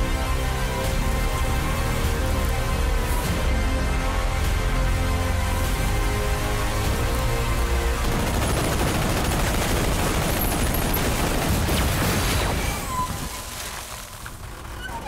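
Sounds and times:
music: 0.0s - 12.0s
rapid gunfire: 7.9s - 12.4s.

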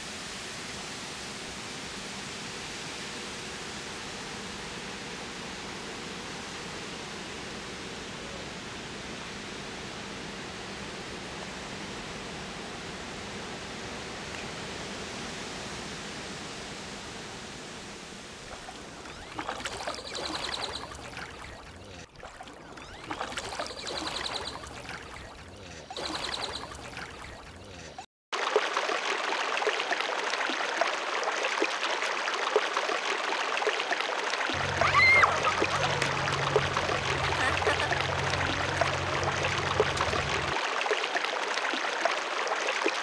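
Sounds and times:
water rushing over weir: 0.0s - 43.0s
water splashing over spillway: 18.4s - 27.8s, 28.4s - 43.0s.

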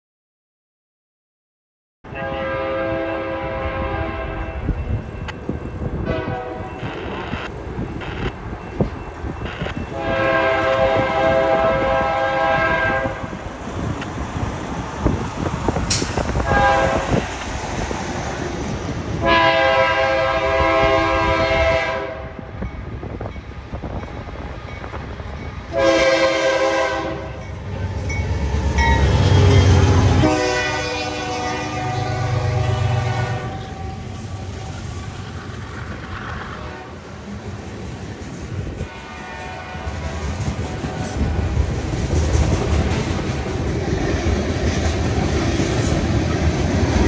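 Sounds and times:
locomotive air horn blasts: 2.1s - 4.7s, 6.0s - 6.8s, 9.9s - 13.4s, 16.4s - 17.2s, 19.2s - 22.5s, 25.7s - 27.5s, 29.1s - 34.5s, 36.6s - 37.0s, 38.8s - 41.3s.

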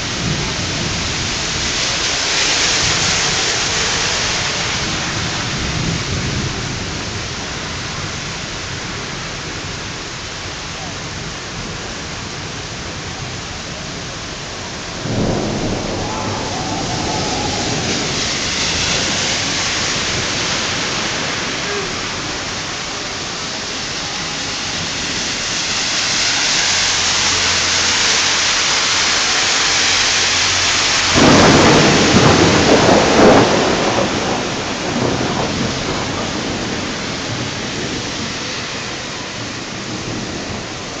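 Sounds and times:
heavy rain pouring: 0.0s - 41.0s
thunder rumbling: 14.8s - 22.8s, 30.4s - 40.9s.

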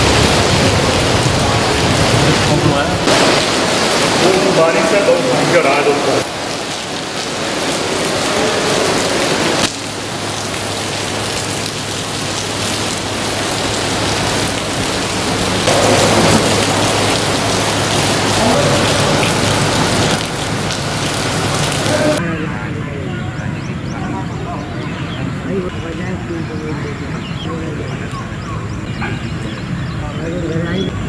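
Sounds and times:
heavy rain on wet ground: 0.0s - 31.0s.

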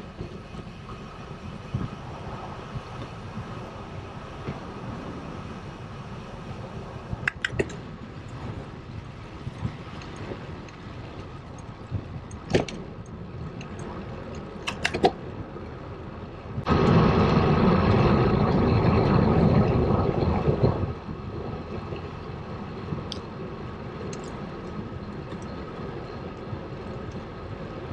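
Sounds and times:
loud wind rumble: 0.0s - 27.9s
wind and road noise: 0.0s - 27.9s
sharp clicks: 7.3s - 7.8s.

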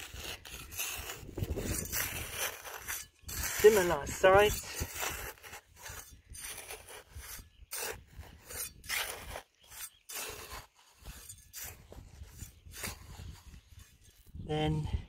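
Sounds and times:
trowel scraping gravelly soil: 0.0s - 15.0s.

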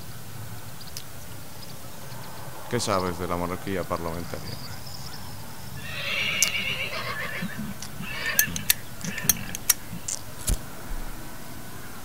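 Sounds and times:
horse whinnying: 5.8s - 10.1s
sharp clicks and knocks: 7.8s - 11.2s.

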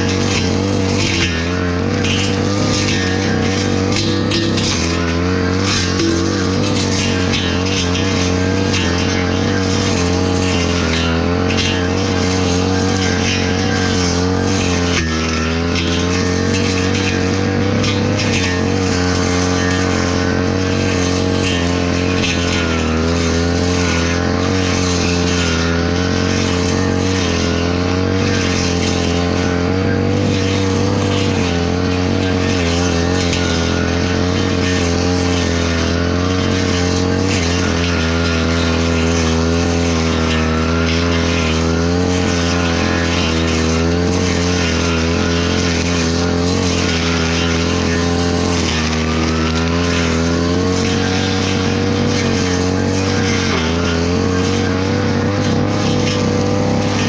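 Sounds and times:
brush cutter cutting grass: 0.0s - 57.0s.

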